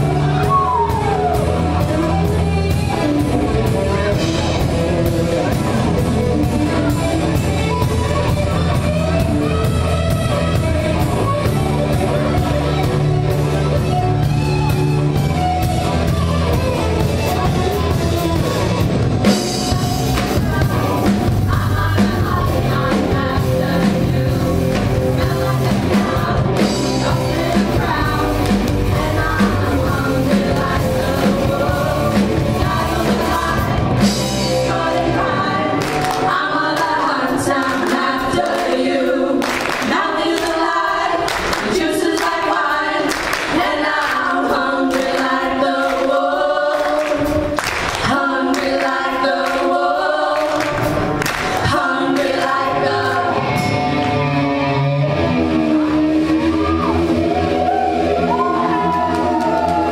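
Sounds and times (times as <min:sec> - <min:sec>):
live band with drums and guitars: 0:00.0 - 0:59.9
voices singing together: 0:17.3 - 0:54.5
handclaps: 0:35.8 - 0:36.9, 0:39.4 - 0:40.6, 0:41.3 - 0:42.4, 0:43.1 - 0:44.2, 0:46.9 - 0:49.6, 0:50.4 - 0:52.3.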